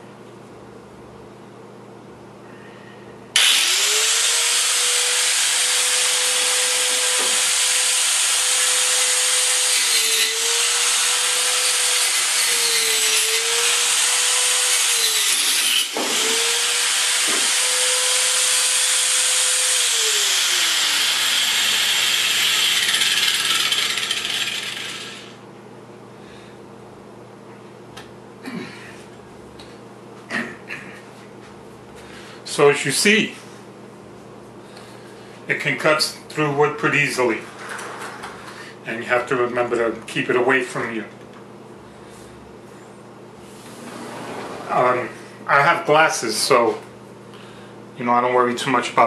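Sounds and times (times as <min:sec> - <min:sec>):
angle grinder cutting wood: 0:03.4 - 0:25.4.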